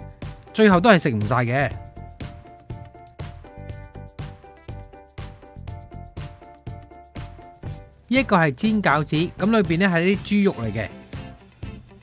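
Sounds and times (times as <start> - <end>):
background music with steady beat: 0.0 - 12.0.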